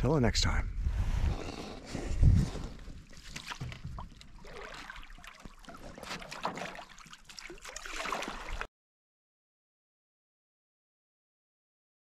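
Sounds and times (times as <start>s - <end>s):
paddles splashing in water: 2.3s - 8.7s
water trickling off paddles: 2.4s - 8.7s.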